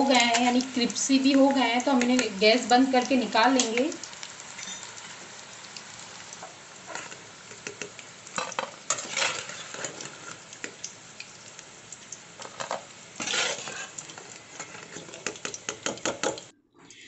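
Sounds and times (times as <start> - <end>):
food sizzling in hot oil: 0.0 - 16.5
spatula scraping and clinking pan: 4.6 - 5.0, 6.9 - 10.4, 12.4 - 16.4.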